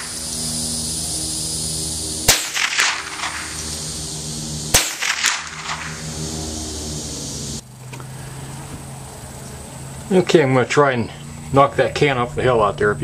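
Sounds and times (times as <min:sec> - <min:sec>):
rifle shots echoing: 0:02.2 - 0:04.0, 0:04.7 - 0:06.2.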